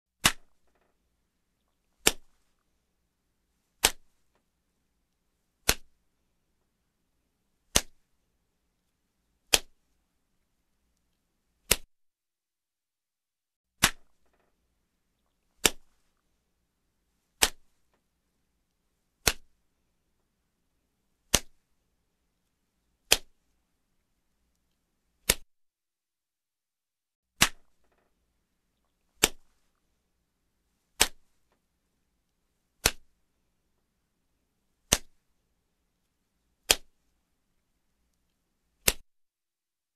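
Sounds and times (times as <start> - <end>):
sharp slaps: 0.2 - 0.9, 2.0 - 2.6, 3.8 - 4.4, 5.6 - 6.0, 7.7 - 8.2, 9.5 - 10.0, 11.6 - 11.9, 13.8 - 14.5, 15.5 - 16.2, 17.4 - 18.0, 19.2 - 19.6, 21.2 - 21.7, 23.0 - 23.5, 25.2 - 25.5, 27.4 - 28.1, 29.1 - 29.8, 30.9 - 31.6, 32.8 - 33.2, 34.8 - 35.3, 36.6 - 37.1, 38.8 - 39.1.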